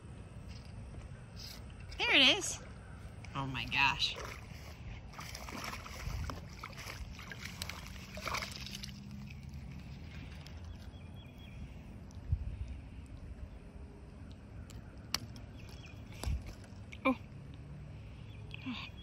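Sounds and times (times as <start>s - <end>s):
fish splashing in shallow water: 4.0s - 11.4s.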